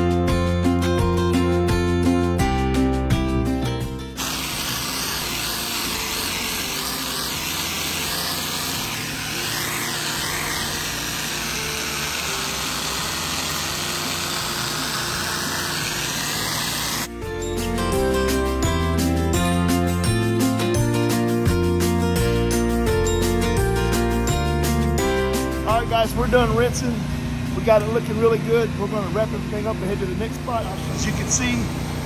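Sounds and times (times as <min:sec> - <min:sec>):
pressure washer spraying pavement: 0:04.1 - 0:17.2.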